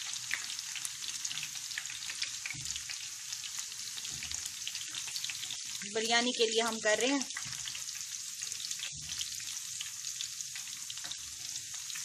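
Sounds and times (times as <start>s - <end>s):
onions sizzling in hot oil: 0.0s - 12.0s
spoon stirring in a pan: 3.7s - 5.9s, 7.3s - 9.9s.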